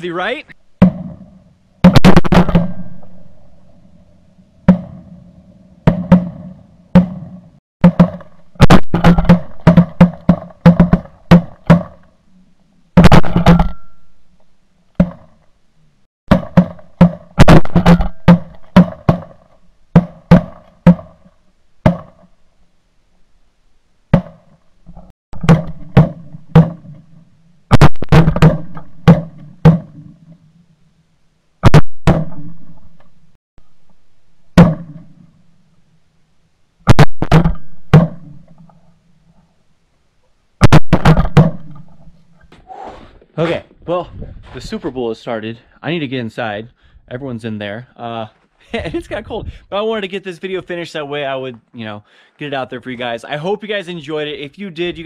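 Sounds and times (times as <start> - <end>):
shotgun shots: 1.8 - 3.2, 5.9 - 12.0, 27.7 - 29.9, 40.6 - 41.8.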